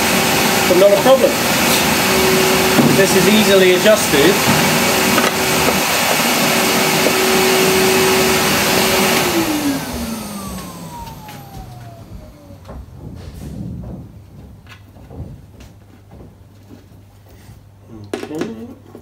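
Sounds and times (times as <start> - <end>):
dust extractor humming: 0.0 - 14.1.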